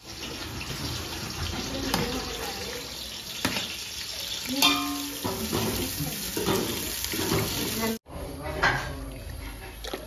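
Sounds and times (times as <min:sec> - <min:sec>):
onions sizzling in hot oil: 0:00.0 - 0:08.0
metal spoon clinking on pot: 0:04.6 - 0:05.6.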